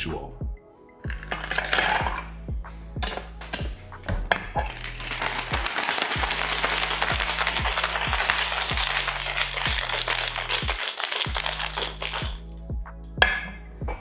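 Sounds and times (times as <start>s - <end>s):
background music with beat: 0.0s - 14.0s
ice knocking into shaker: 1.1s - 2.3s, 3.0s - 12.5s
ice rattling in cocktail shaker: 1.1s - 2.3s, 4.3s - 12.5s.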